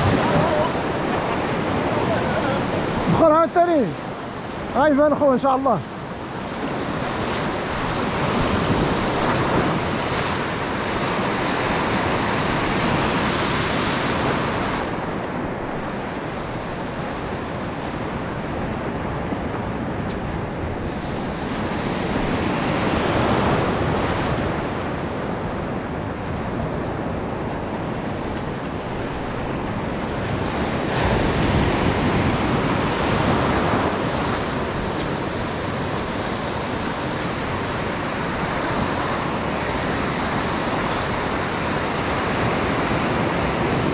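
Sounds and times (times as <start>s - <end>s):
surf breaking over sand: 0.0s - 3.9s.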